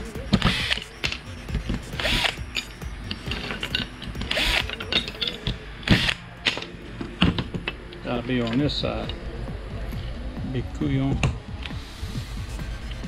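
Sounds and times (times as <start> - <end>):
clicks of screws and washers: 0.4 - 6.7
cordless drill driving screws: 2.0 - 2.4, 4.2 - 4.8, 5.9 - 6.2.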